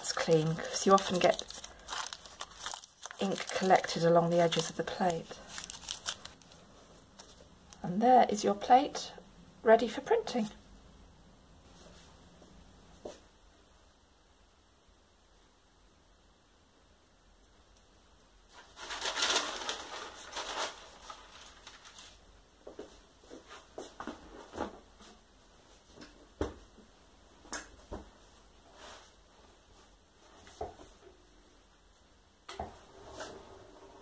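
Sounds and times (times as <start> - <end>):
paper and felt rustling and flapping: 0.0 - 7.5, 18.5 - 25.9.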